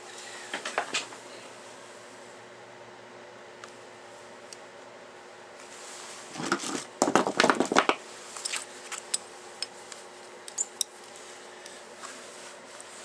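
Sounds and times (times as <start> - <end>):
metal parts and tools clicking: 10.5 - 10.9.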